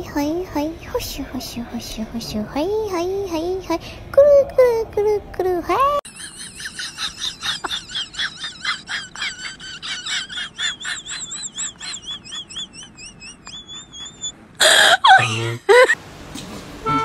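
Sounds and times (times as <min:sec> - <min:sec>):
dog whining high-pitched: 0:11.8 - 0:14.4.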